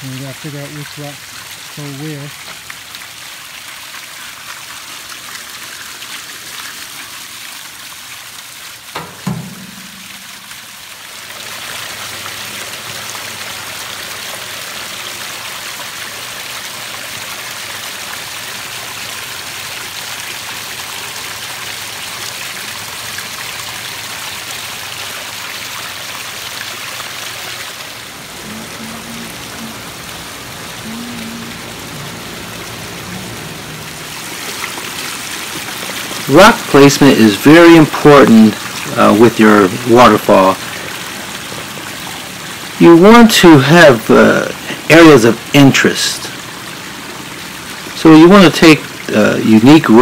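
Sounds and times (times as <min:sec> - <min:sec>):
waterfall splashing over rocks: 0:00.0 - 0:50.0
sharp knock: 0:09.0 - 0:10.7.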